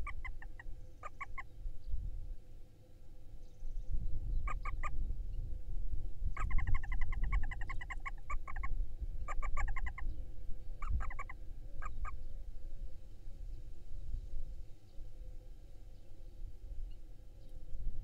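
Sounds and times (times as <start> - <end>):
owl chittering: 0.0 - 1.5, 4.4 - 5.0, 6.4 - 8.7, 9.3 - 10.0, 10.8 - 12.2.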